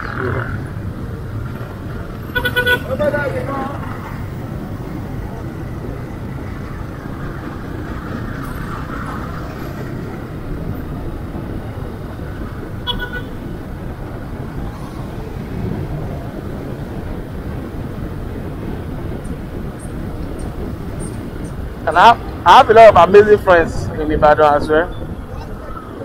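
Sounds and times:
motorcycle low rumble: 0.0s - 26.0s
vehicle horn toot: 2.3s - 3.0s, 12.8s - 13.4s.

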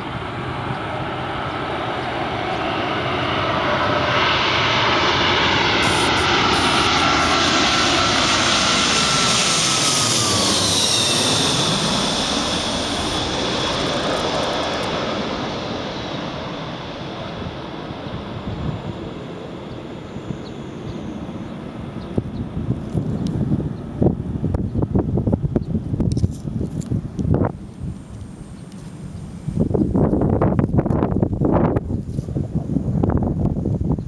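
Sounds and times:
rushing wake vortices: 0.0s - 19.5s
jet airliner passing overhead: 0.0s - 34.0s.

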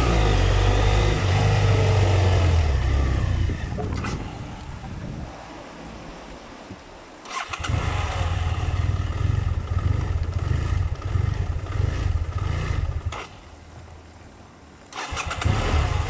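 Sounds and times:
motorcycle engine unsteady idle: 8.1s - 13.3s.

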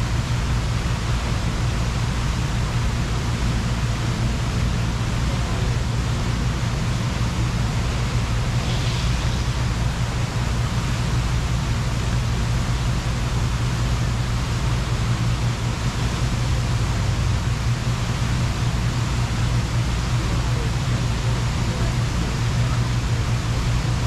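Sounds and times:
fountain water splashing: 0.0s - 24.0s.

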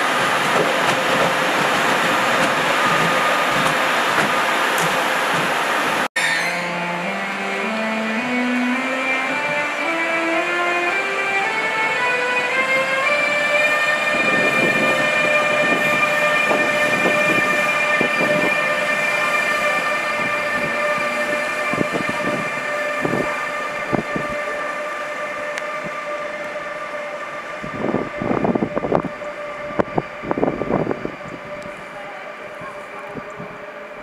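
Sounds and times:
wheels knocking on track: 0.0s - 5.6s
electric locomotive whine: 0.0s - 34.0s.

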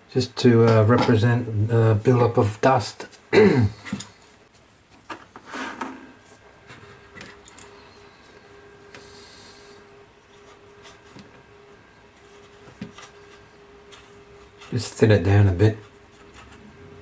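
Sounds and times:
faint steady hum: 0.0s - 17.0s
light knocks and rubbing: 12.2s - 14.8s.

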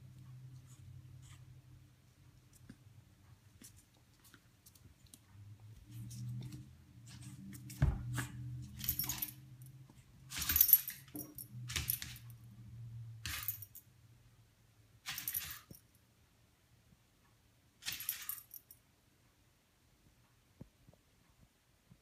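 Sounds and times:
metal dog tag jingling: 8.8s - 9.4s.

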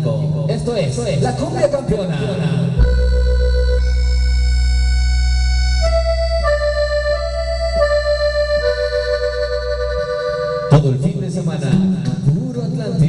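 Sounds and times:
deep bass: 0.0s - 13.0s
reedy melody of held notes: 0.9s - 13.0s
loud cumbia music: 2.8s - 11.1s.

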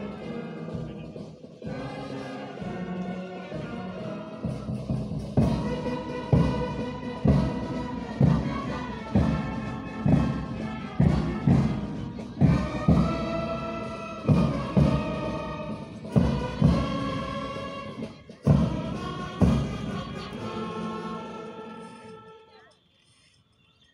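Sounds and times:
heavy drum beat: 4.4s - 20.7s.

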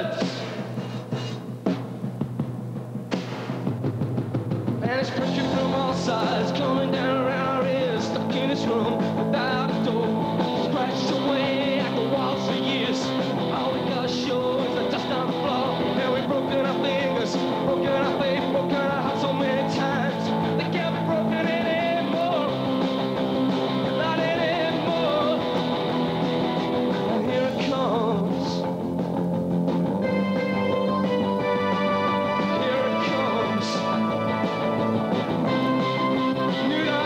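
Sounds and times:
rock band playing live: 0.0s - 37.0s
person singing: 4.8s - 23.0s, 23.7s - 25.7s, 27.0s - 28.7s, 30.1s - 37.0s.

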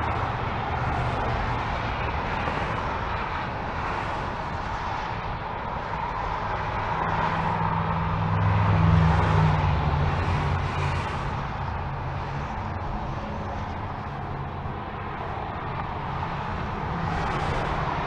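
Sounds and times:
freeway traffic tyre noise: 0.0s - 18.0s
vehicle passing low rumble: 6.1s - 18.0s.

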